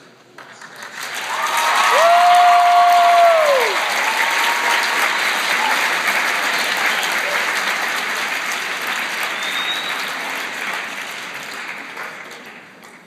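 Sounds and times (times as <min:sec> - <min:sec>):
audience applauding: 0:00.4 - 0:13.0
long high cheer: 0:01.1 - 0:07.9.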